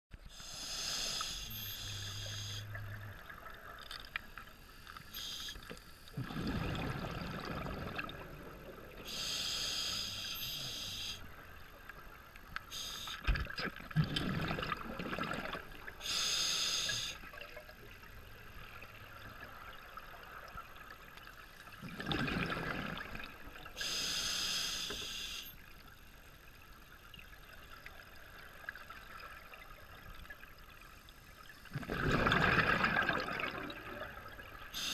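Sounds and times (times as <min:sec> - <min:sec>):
regulator hissing inhalations: 0:00.3 - 0:02.8, 0:05.1 - 0:05.7, 0:09.1 - 0:11.2, 0:12.7 - 0:13.3, 0:16.0 - 0:17.2, 0:23.8 - 0:25.6.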